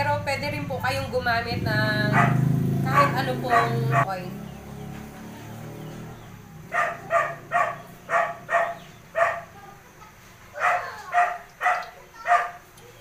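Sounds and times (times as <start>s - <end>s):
dog barking: 2.1s - 4.2s, 6.6s - 9.8s, 10.5s - 12.7s.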